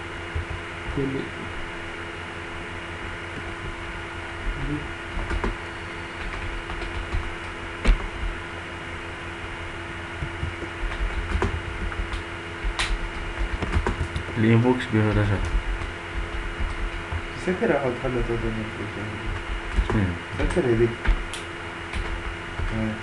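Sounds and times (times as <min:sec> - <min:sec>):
steady electrical hum: 0:00.0 - 0:23.0
keyboard and mouse clicks: 0:05.2 - 0:05.6, 0:06.2 - 0:08.0, 0:10.2 - 0:14.3.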